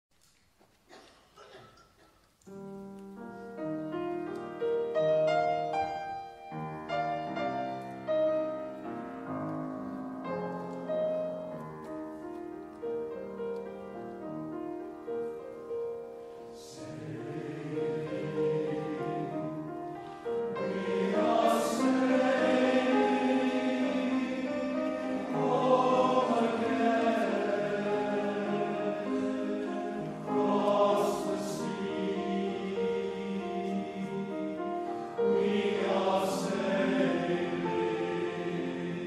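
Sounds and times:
piano chords: 2.5 - 39.0
male voice choir singing: 16.6 - 34.6, 35.2 - 39.0.

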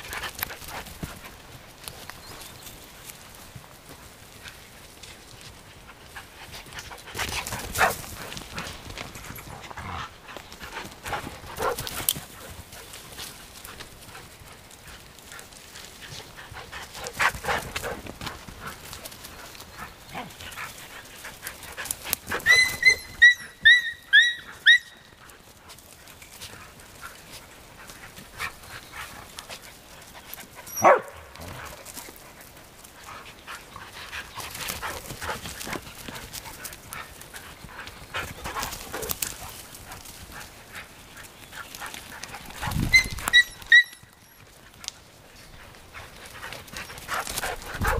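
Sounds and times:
paws scuffling through twigs: 0.0 - 47.9
dog yelping: 22.4 - 25.0, 30.7 - 31.2, 42.9 - 44.1.

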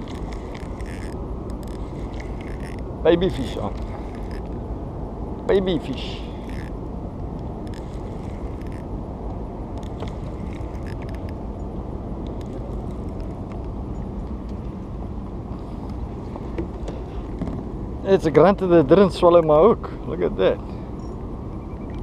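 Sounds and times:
fishing reel ticking: 0.0 - 2.8, 3.4 - 4.5, 6.4 - 6.8, 7.6 - 8.9, 9.8 - 11.4
low rumble: 0.0 - 18.1.

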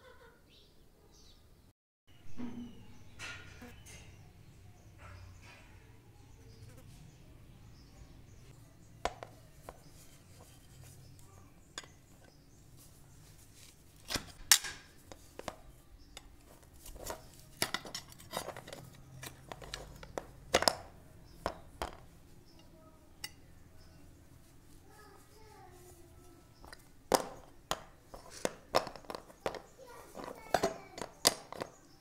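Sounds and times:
knocks and clinks of metal and wood: 2.4 - 4.3, 9.0 - 12.6, 14.0 - 23.5, 26.6 - 32.0.

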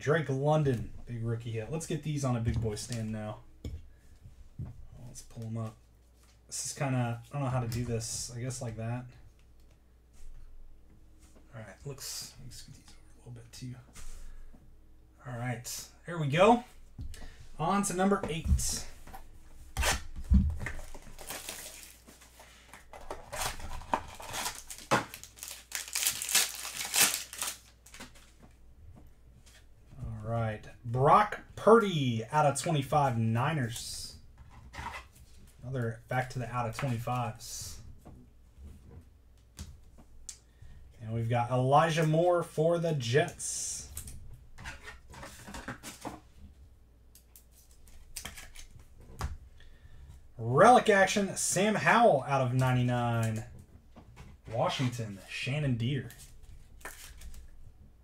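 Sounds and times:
plastic sleeves rustling: 16.3 - 30.0, 47.2 - 50.2, 51.8 - 57.8
foil pack crinkling and rustling: 20.7 - 28.4.

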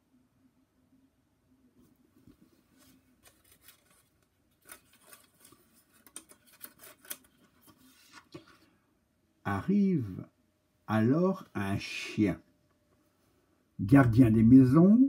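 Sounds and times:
paper pages rustling: 2.2 - 8.7.

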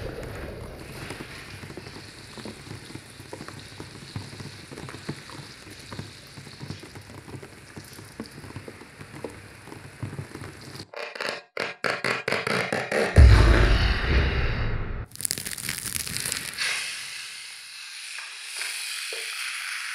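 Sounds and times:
capacitor sizzling and popping: 0.0 - 10.9, 15.1 - 19.9.

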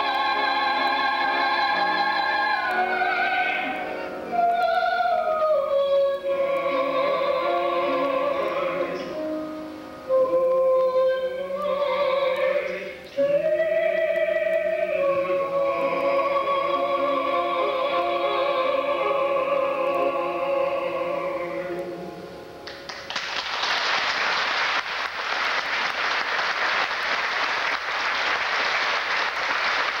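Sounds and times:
singers holding a chord: 10.1 - 22.4
audience applause: 22.8 - 30.0.

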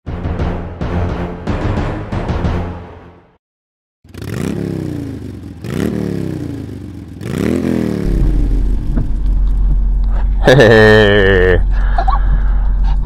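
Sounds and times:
engine revving: 4.1 - 12.6
low engine hum: 8.0 - 13.0.

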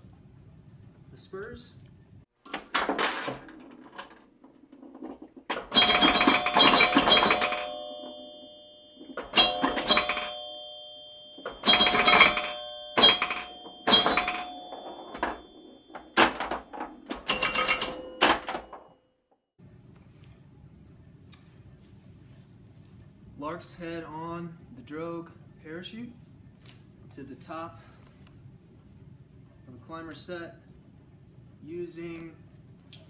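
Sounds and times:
metal climbing gear clanking: 2.6 - 19.0.

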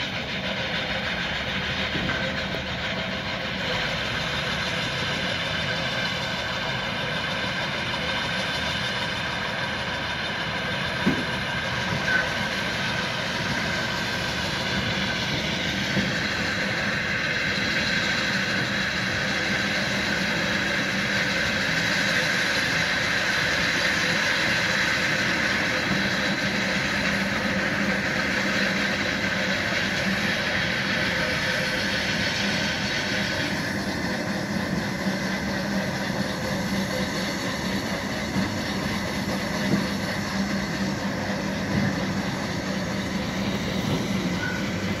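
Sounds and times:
engine running: 0.0 - 45.0.

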